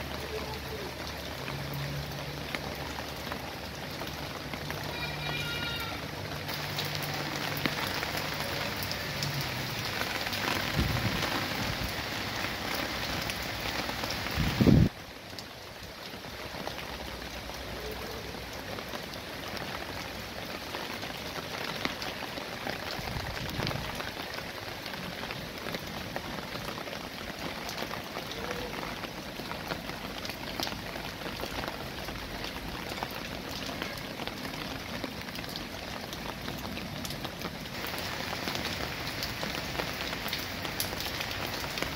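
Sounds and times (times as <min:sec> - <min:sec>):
rain falling: 0:00.0 - 0:41.9.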